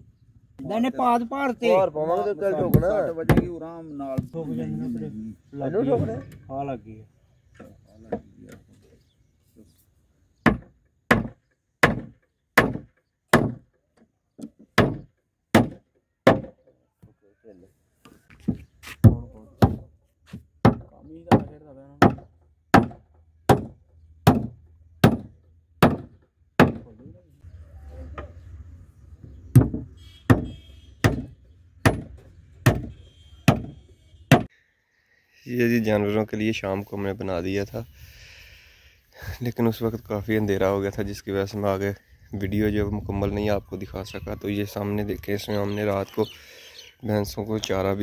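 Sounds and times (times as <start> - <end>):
hatchet striking wooden post: 2.6 - 3.6, 10.4 - 13.8, 14.4 - 16.7, 19.0 - 26.9, 29.2 - 34.5.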